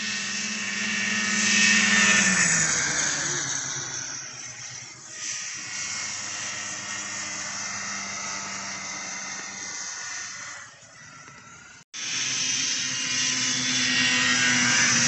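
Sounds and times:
distant snowmobile engines droning: 0:00.0 - 0:15.0.

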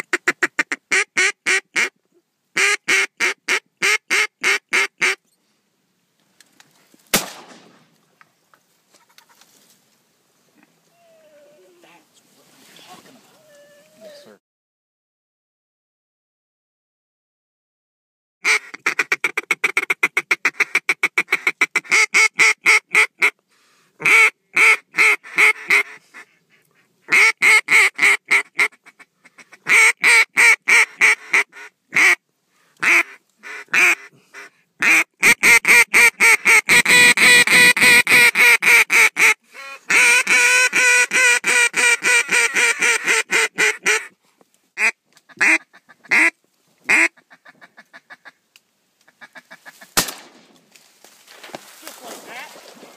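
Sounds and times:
duck call quacks: 0:00.0 - 0:02.0, 0:02.6 - 0:05.2, 0:18.4 - 0:23.4, 0:24.0 - 0:32.2, 0:32.8 - 0:44.2, 0:44.8 - 0:48.4, 0:49.1 - 0:50.0.

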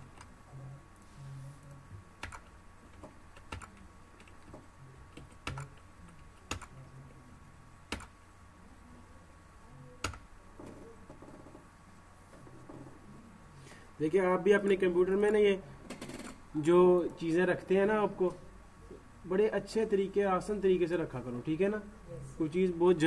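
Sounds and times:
faint steady hum: 0:00.0 - 0:23.0
computer mouse clicks: 0:02.2 - 0:04.5, 0:07.9 - 0:08.1.

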